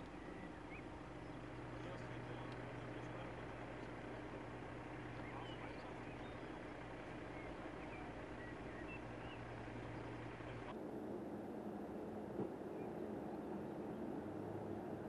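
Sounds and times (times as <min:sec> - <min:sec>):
bird chirps: 0:00.0 - 0:10.7
vehicle engine idling: 0:00.0 - 0:15.0.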